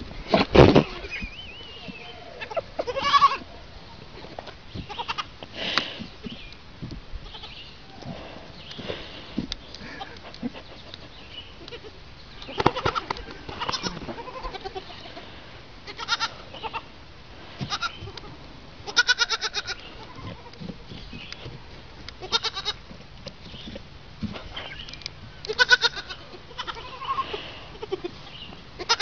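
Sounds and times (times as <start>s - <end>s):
goat kids bleating: 0.8s - 3.5s, 4.8s - 5.9s, 7.2s - 7.6s, 11.6s - 16.9s, 17.6s - 20.7s, 22.2s - 22.9s, 25.4s - 29.0s.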